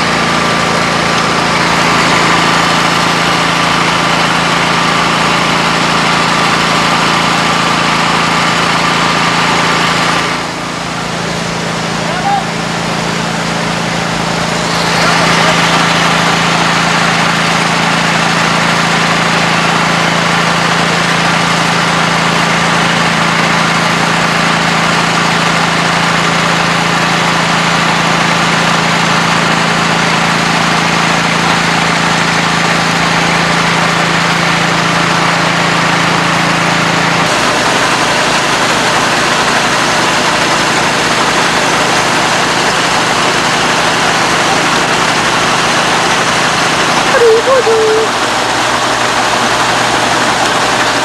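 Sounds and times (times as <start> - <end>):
diesel truck engine idling: 0.0 - 51.0
grain auger running: 0.0 - 51.0.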